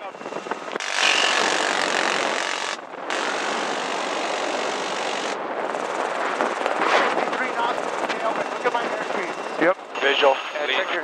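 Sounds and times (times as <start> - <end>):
helicopter rotor and engine: 0.0 - 11.0
minigun firing bursts: 0.8 - 5.4.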